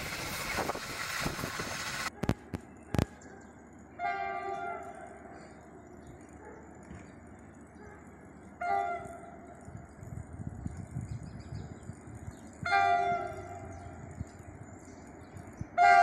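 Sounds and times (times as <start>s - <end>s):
locomotive air horn blasts: 4.0s - 5.2s, 8.6s - 9.3s, 12.6s - 13.9s, 15.8s - 16.0s.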